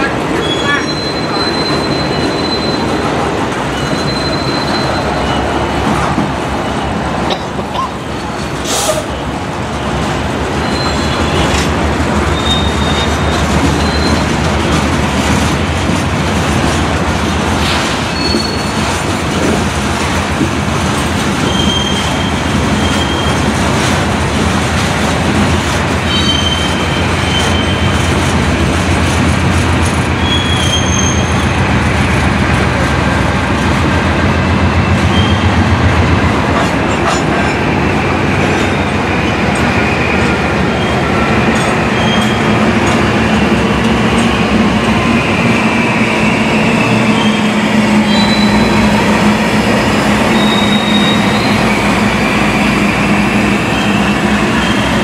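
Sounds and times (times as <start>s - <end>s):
steel wheels rumbling on rail: 0.0s - 55.0s
high-pitched wheel squeals: 0.4s - 3.1s, 3.7s - 5.8s, 10.6s - 11.6s, 12.3s - 14.4s, 18.1s - 18.8s, 21.4s - 23.4s, 26.1s - 27.9s, 30.2s - 31.6s, 46.2s - 49.2s, 49.8s - 55.0s.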